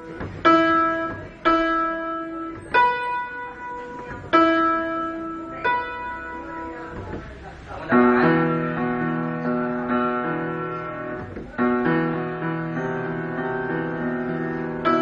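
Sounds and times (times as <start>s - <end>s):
electronic keyboard chords: 0.0s - 15.0s.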